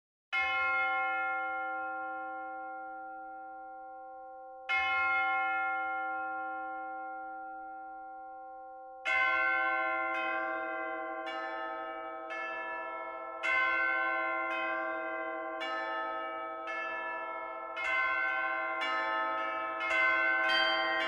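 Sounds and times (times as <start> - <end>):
bell-like struck notes: 19.8 - 21.0.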